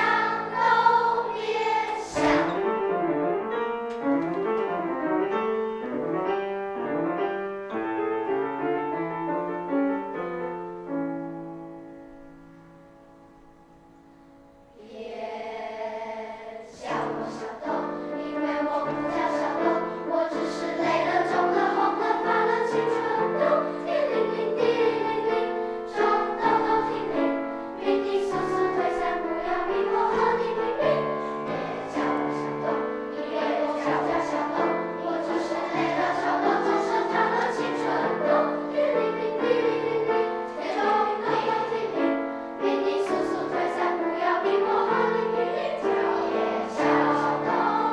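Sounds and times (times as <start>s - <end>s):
children's choir singing: 0.0s - 3.6s, 14.6s - 47.9s
piano accompaniment: 0.0s - 14.8s, 15.4s - 47.9s.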